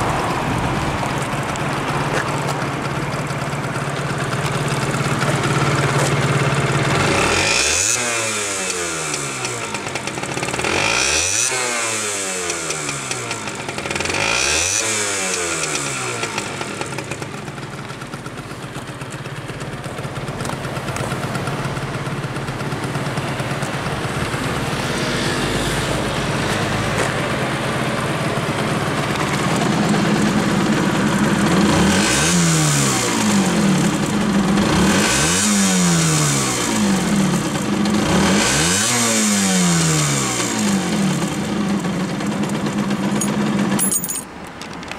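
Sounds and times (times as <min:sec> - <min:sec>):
two-stroke engine revving: 0:01.2 - 0:43.9.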